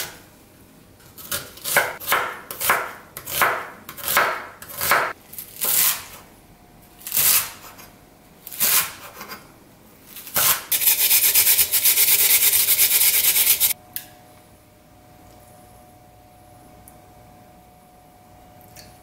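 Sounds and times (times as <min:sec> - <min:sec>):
onion rasping on a plastic grater: 0:10.4 - 0:13.8.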